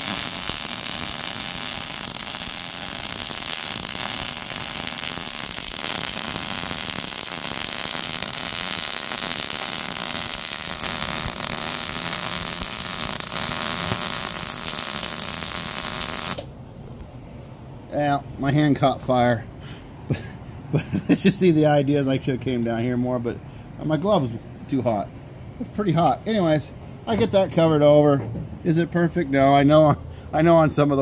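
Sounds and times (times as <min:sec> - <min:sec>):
welding arc: 0:00.0 - 0:16.5.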